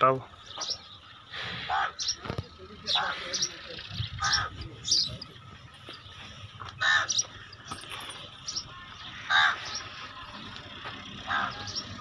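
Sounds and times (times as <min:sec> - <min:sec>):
crow cawing: 0:01.6 - 0:02.0, 0:04.2 - 0:04.5, 0:06.8 - 0:07.3, 0:09.3 - 0:09.7, 0:11.3 - 0:11.6.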